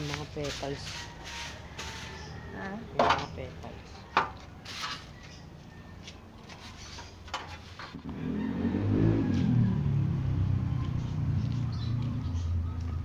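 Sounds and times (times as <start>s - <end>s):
broom and dustpan scraping: 0.0s - 3.4s, 4.6s - 5.4s, 6.4s - 8.0s
vehicle engine running: 7.7s - 13.0s.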